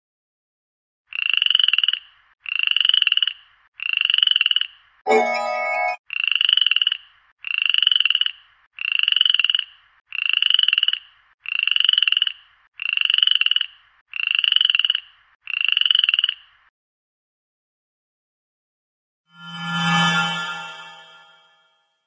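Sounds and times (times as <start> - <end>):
frog croaking: 1.1 - 4.9, 6.0 - 16.7.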